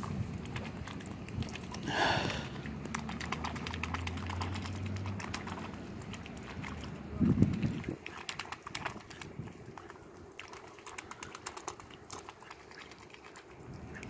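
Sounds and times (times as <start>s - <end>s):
swan dabbling bill in water: 0.0s - 14.0s.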